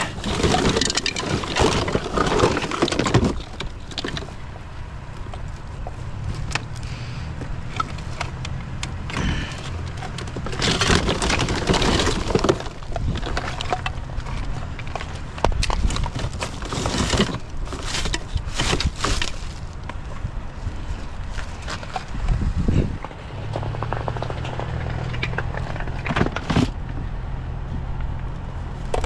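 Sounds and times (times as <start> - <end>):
plastic rustling and clattering: 0.0 - 4.5, 7.7 - 20.2, 20.8 - 22.4, 23.0 - 27.0.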